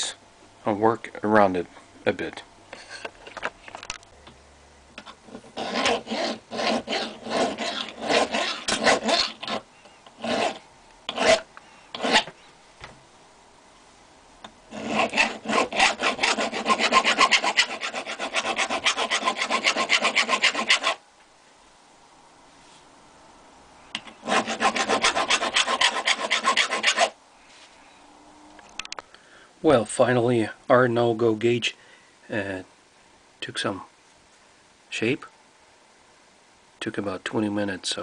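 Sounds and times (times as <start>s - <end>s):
hand file rasping on metal: 5.5s - 9.6s, 10.2s - 12.3s, 14.7s - 21.0s, 24.0s - 27.1s.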